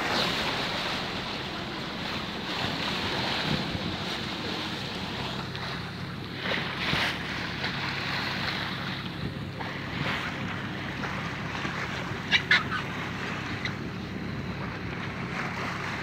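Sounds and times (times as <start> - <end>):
wind buffeting microphone: 0.0 - 12.3
boat engine droning: 0.0 - 16.0
sea wash: 0.0 - 16.0.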